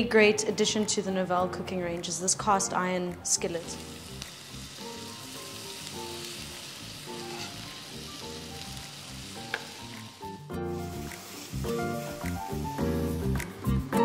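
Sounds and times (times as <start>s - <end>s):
chicken sizzling in oil: 3.4s - 13.4s.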